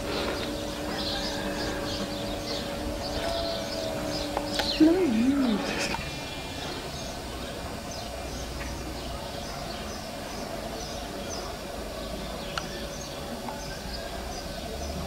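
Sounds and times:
birds chirping: 0.0s - 15.0s
steady outdoor hum: 0.0s - 15.0s.

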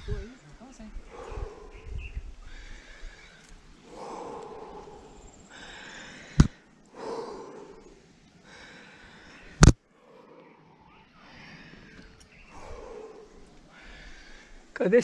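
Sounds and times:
person breathing hard: 1.1s - 1.8s, 2.4s - 10.4s, 11.2s - 14.7s.

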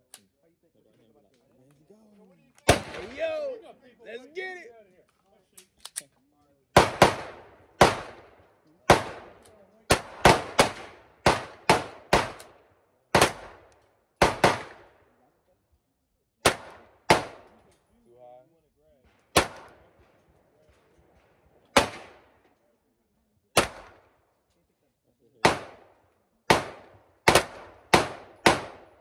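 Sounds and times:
sharp gunshots: 2.7s - 3.3s, 6.8s - 15.0s, 16.4s - 17.6s, 19.1s - 20.0s, 21.7s - 22.4s, 23.5s - 24.2s, 25.4s - 29.0s.

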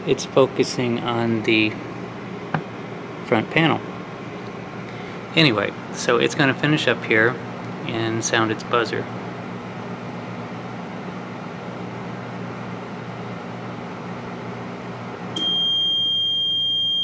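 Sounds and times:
microwave humming: 0.0s - 17.0s
high-pitched buzzer tone: 15.4s - 17.0s.

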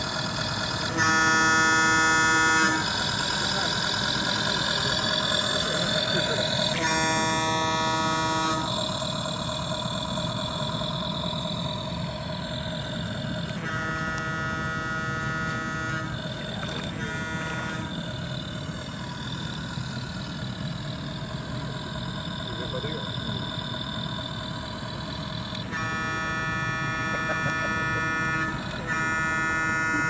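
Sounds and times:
recorded boat engine running: 0.0s - 30.0s
ship's horn: 0.1s - 20.9s, 24.9s - 30.0s.

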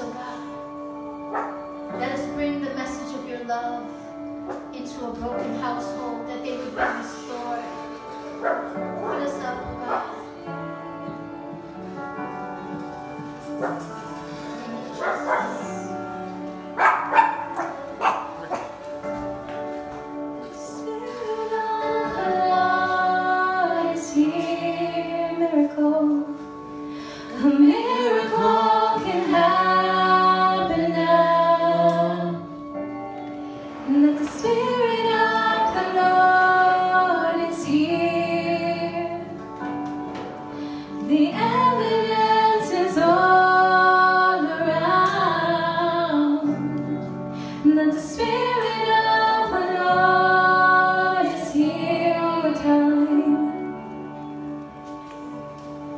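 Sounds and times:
women singing: 0.0s - 2.7s, 20.5s - 26.6s, 27.2s - 32.7s, 33.8s - 39.5s, 41.0s - 53.9s
guitar accompaniment: 0.0s - 55.9s.

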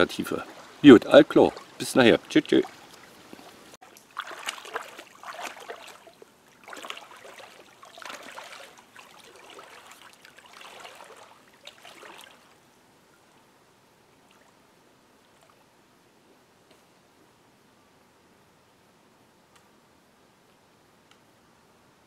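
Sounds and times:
wading splashes in water: 0.0s - 12.6s.

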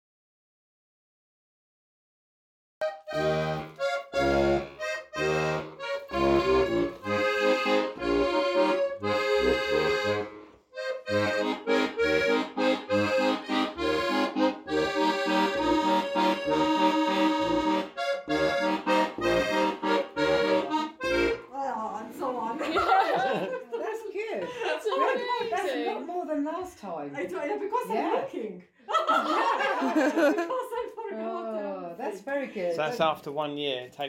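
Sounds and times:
accordion folk tune: 2.8s - 21.7s.

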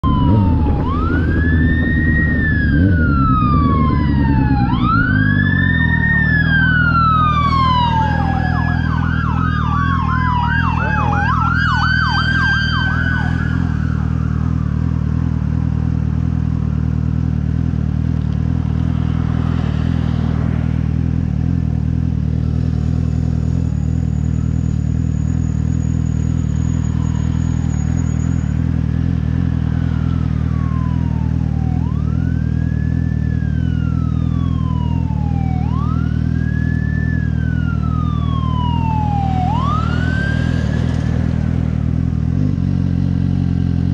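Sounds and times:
fire engine sirens wailing: 0.0s - 15.4s, 25.3s - 42.2s.

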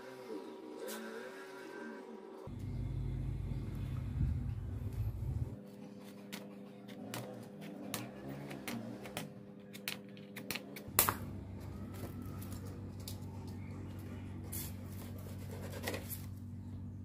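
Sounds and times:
low hum: 2.5s - 6.0s, 10.9s - 17.0s.

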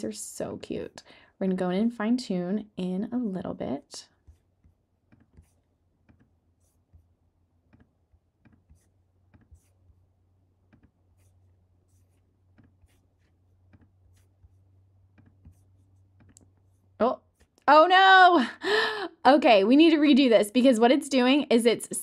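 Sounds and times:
computer mouse clicks: 16.2s - 16.5s.

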